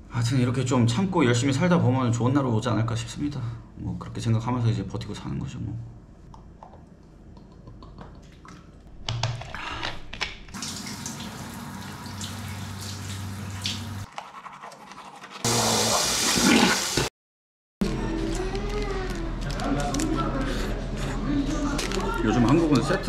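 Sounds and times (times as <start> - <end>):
shower water spraying: 10.6 - 14.1, 15.5 - 17.1.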